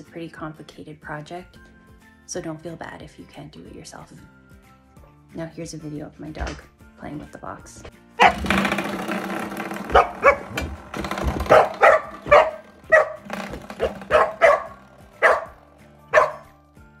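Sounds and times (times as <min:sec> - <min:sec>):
background music: 0:00.0 - 0:17.0
dog barking and yipping: 0:08.2 - 0:08.5, 0:09.9 - 0:16.5.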